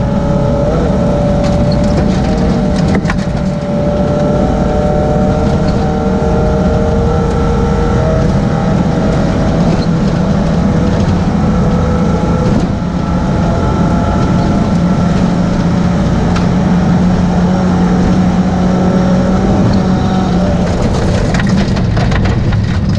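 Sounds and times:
car engine running hard: 0.0s - 22.9s.

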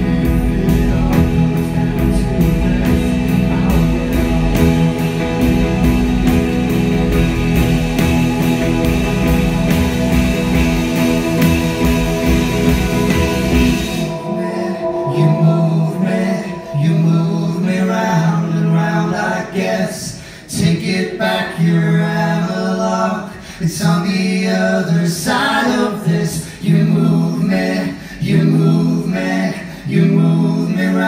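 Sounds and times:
electric bass: 0.0s - 19.4s
archtop guitar: 0.0s - 19.6s
person singing long notes: 11.7s - 19.6s.

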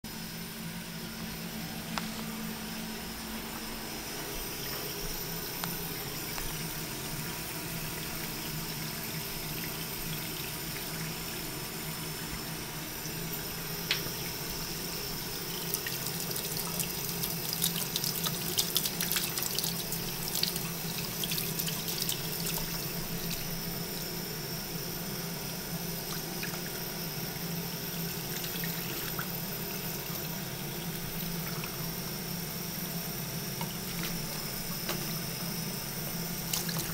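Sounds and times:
faucet running into sink: 4.1s - 24.1s, 25.9s - 32.3s, 36.4s - 36.9s
water splashing and dripping: 36.5s - 36.9s.

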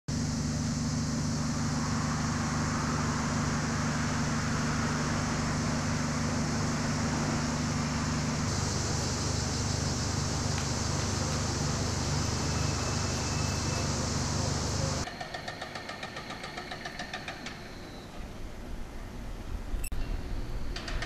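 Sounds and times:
even hiss: 0.1s - 15.1s
low mechanical hum: 0.1s - 15.1s, 16.0s - 21.0s.

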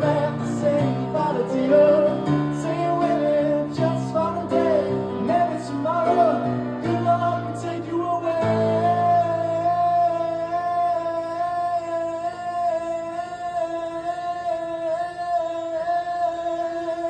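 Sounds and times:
grand piano chords: 0.0s - 16.6s
man singing long high note: 0.0s - 17.0s.

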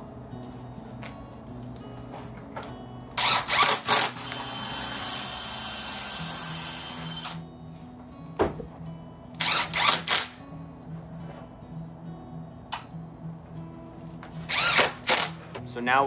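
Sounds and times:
cordless driver driving screws: 3.2s - 7.4s, 9.4s - 10.4s, 14.4s - 15.4s.

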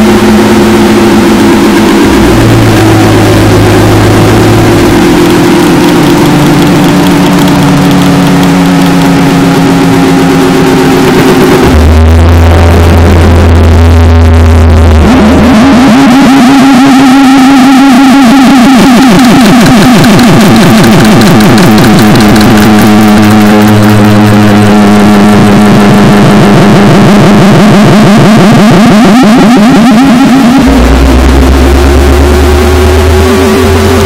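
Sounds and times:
deep low drone: 0.0s - 34.0s
distorted wall of noise: 0.0s - 34.0s
fast stuttering buzz: 0.0s - 34.0s.

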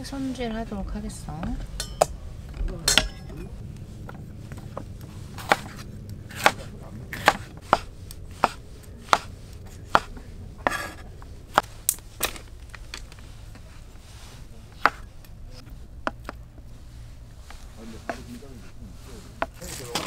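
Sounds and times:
knife scraping: 5.3s - 11.1s
knife chopping on cutting board: 5.4s - 9.3s, 9.9s - 11.0s, 14.8s - 15.1s.

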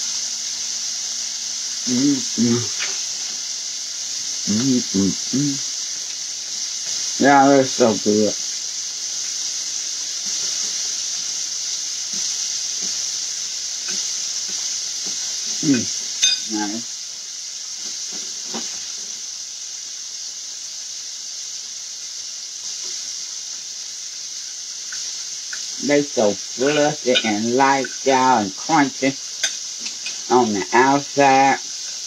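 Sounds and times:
chicken sizzling in oil: 0.0s - 32.0s
sharp metal clink: 16.2s - 16.5s.

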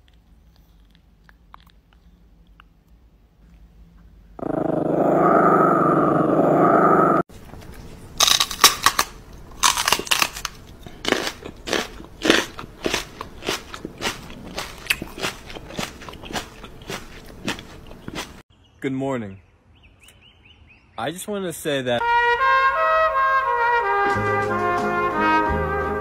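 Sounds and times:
crunching chews: 0.0s - 4.2s, 7.5s - 18.4s
small dog growling: 4.4s - 7.2s.

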